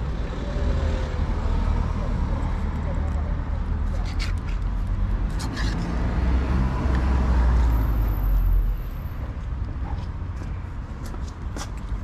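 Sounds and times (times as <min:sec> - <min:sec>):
motor vehicle passing: 0:00.2 - 0:08.6.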